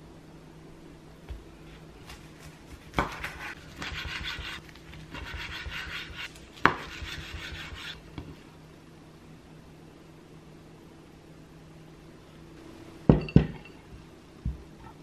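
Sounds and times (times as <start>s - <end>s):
scraping and rubbing on board: 3.0s - 8.0s.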